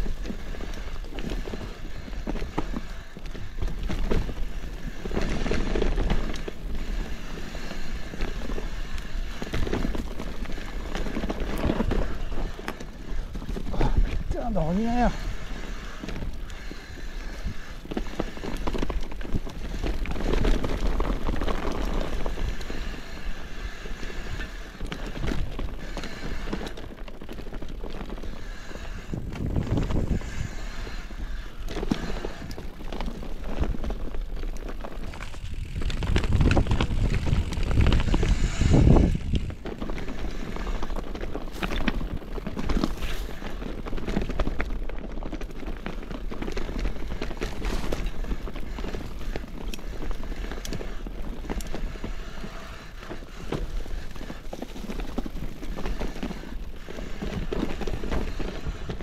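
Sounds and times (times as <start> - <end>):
wind buffeting microphone: 0.0 - 26.7, 28.2 - 59.0
bike tyres on dirt track: 0.0 - 59.0
bike knocks and rattles: 27.2 - 58.9.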